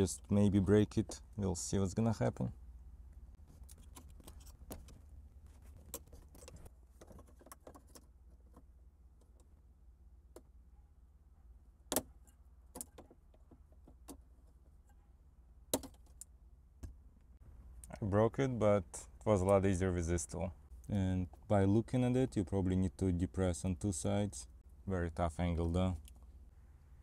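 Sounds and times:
low steady hum: 0:00.0 - 0:27.0.

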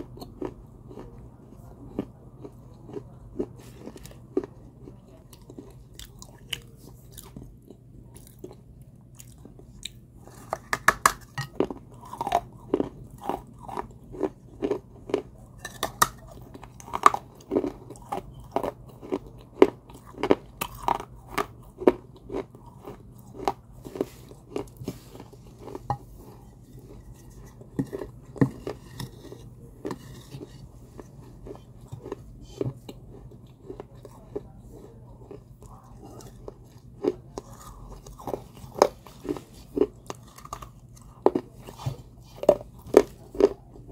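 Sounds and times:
clay pot pieces crunching: 0:09.2 - 0:43.9.

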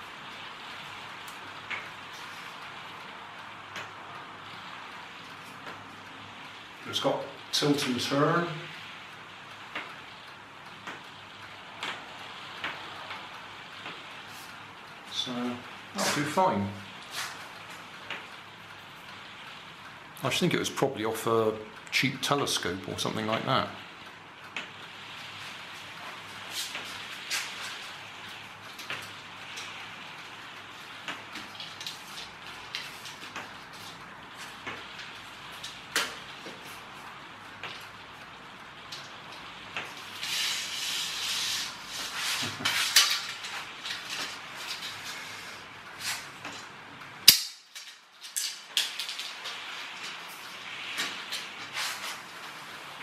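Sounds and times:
steady hiss: 0:00.0 - 0:53.0
rustling and clatter: 0:25.4 - 0:47.0, 0:47.7 - 0:53.0.

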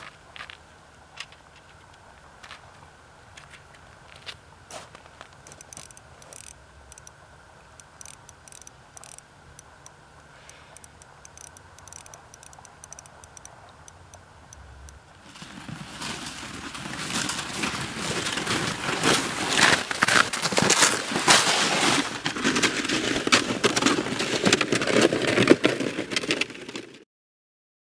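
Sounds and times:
footsteps crunching on crusted snow: 0:02.1 - 0:05.6, 0:15.2 - 0:25.0
faint ticking: 0:05.0 - 0:15.2
plastic sled scraping over snow: 0:15.2 - 0:27.0.

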